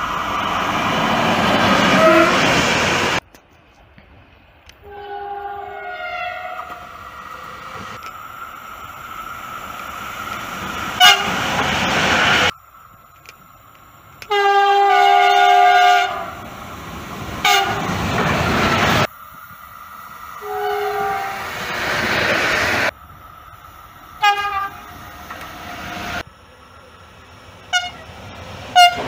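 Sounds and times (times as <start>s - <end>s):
passing train rail noise: 0.0s - 29.0s
train horn blast: 1.8s - 2.5s, 4.8s - 7.8s, 11.0s - 11.5s, 14.2s - 16.4s, 17.4s - 18.0s, 20.4s - 21.5s, 24.2s - 24.8s, 27.7s - 28.1s, 28.7s - 29.0s.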